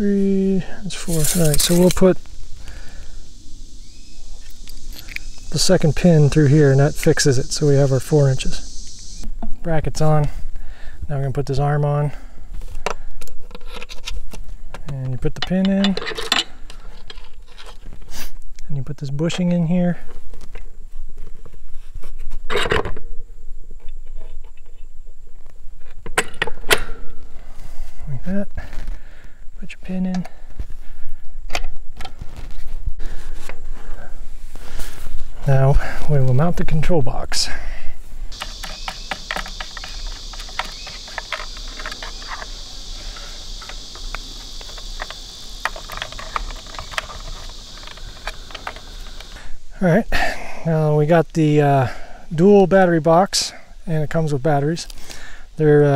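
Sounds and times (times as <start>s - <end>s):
insects chorus: 0.0s - 21.6s, 25.9s - 55.9s
metal hardware clicks and scrapes: 0.9s - 2.2s, 12.8s - 17.9s, 38.3s - 49.4s.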